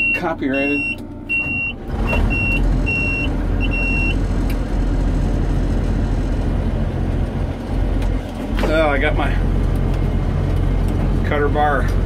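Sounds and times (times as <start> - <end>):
high-pitched warning buzzer beeps: 0.0 - 4.2
diesel engine running: 0.0 - 12.0.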